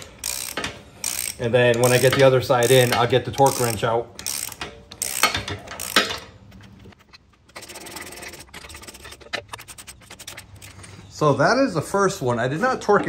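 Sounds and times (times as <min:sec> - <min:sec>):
hand ratchet clicking: 0:00.0 - 0:06.4
metal scraping on metal: 0:05.0 - 0:11.2.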